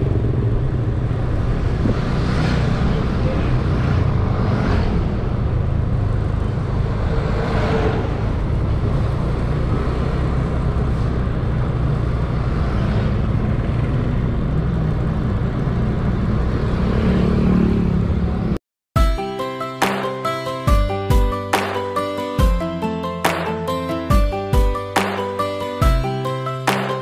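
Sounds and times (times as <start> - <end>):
motorcycle engine running: 0.0 - 2.2
wind rush on microphone: 0.2 - 10.1.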